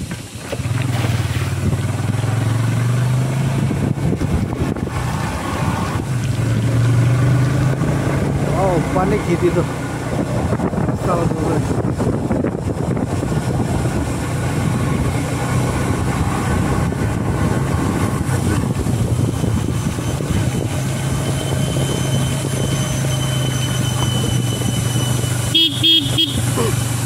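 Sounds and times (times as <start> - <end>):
continuous rushing noise: 0.0 - 27.0
motorcycle engine running: 0.0 - 27.0.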